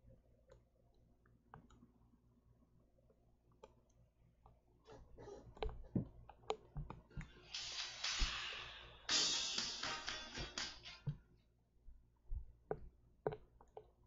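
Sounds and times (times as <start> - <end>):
tinny music leaking from headphones: 6.6 - 11.2.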